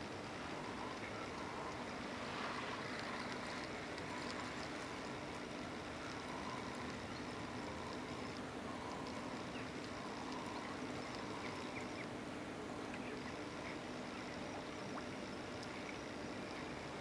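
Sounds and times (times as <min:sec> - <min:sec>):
faint low hum: 0:00.0 - 0:17.0
steady hiss: 0:00.0 - 0:17.0.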